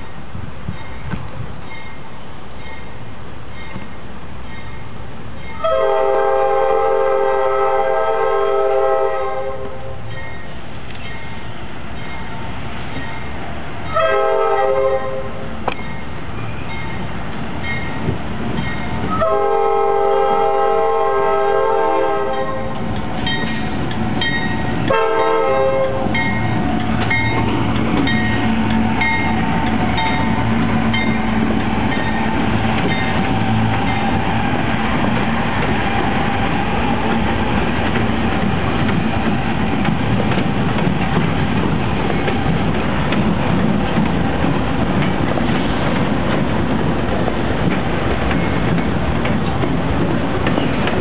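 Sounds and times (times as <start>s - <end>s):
locomotive air horn blasts: 5.6s - 10.0s, 13.9s - 15.5s, 19.1s - 22.8s, 24.8s - 26.3s
wheels clicking over rail joints: 15.6s - 19.4s, 21.4s - 51.0s.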